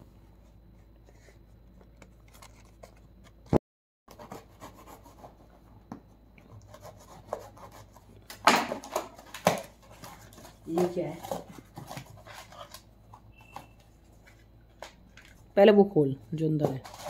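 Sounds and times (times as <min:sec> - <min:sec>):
cardboard rubbing and scratching: 0:08.8 - 0:14.4, 0:16.6 - 0:17.0.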